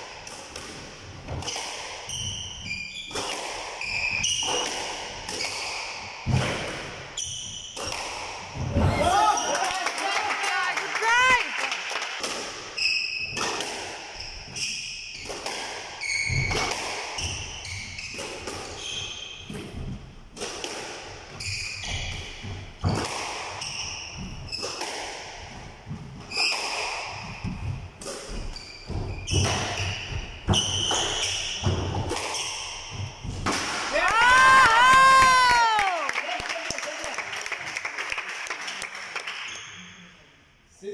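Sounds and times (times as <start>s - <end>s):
shoes squeaking on floor: 1.2s - 9.8s, 12.8s - 20.3s, 21.3s - 33.4s, 39.4s - 40.0s
squash ball thuds: 3.1s - 7.2s, 15.2s - 34.0s.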